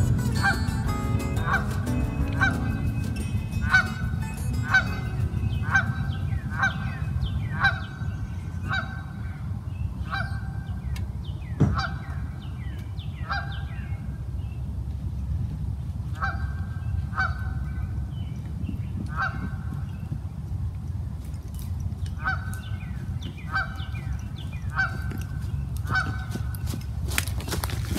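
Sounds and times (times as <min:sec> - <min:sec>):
geese honking: 0:00.0 - 0:07.8
steady low rumble: 0:00.0 - 0:10.6.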